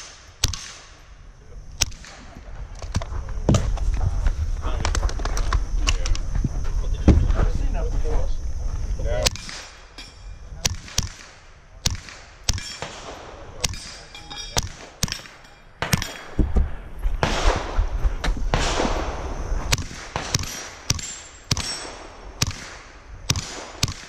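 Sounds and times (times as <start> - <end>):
pistol shots at steel plates: 0.0 - 1.0, 9.3 - 16.4, 19.7 - 24.0.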